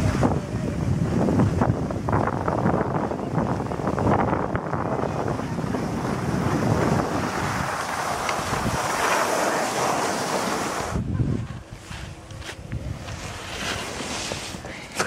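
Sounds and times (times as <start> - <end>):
wind buffeting microphone: 0.0 - 14.9
skis hissing over snow: 6.4 - 11.0, 11.8 - 15.0.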